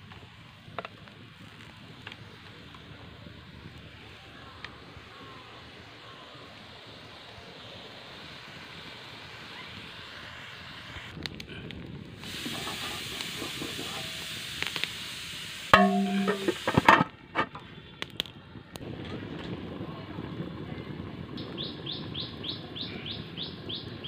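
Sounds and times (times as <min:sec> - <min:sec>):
wood fire hissing and crackling: 0:00.0 - 0:24.0
curry simmering: 0:12.2 - 0:17.0
metal lid clanging on wok: 0:12.5 - 0:14.2, 0:15.8 - 0:17.6.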